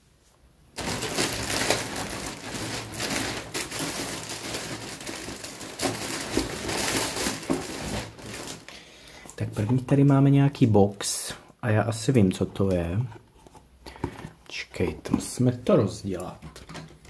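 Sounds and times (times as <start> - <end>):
parcel packaging crinkling: 0.8 - 10.0.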